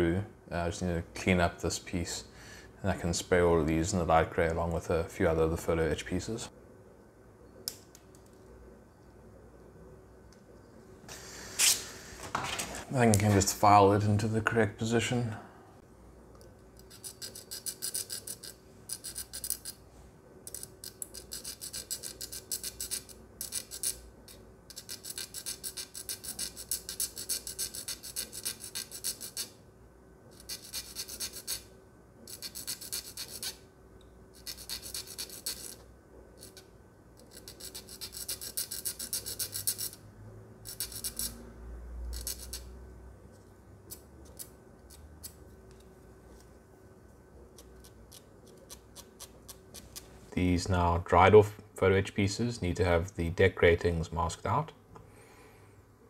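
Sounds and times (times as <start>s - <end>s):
file rasping on plastic: 30.4s - 31.6s, 32.3s - 33.6s, 34.4s - 35.8s, 37.2s - 40.0s.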